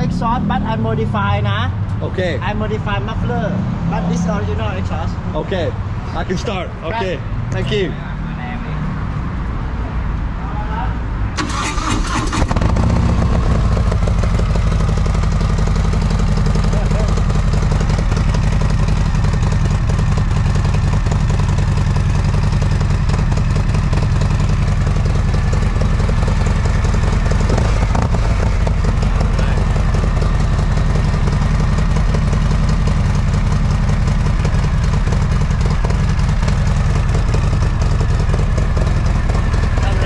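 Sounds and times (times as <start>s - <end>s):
motorcycle engine idling: 11.4s - 40.0s.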